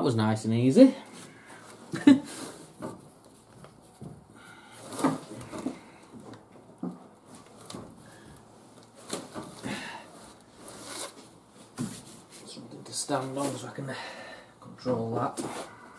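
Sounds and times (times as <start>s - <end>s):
gloved hands rustling and knocking: 2.7s - 12.6s.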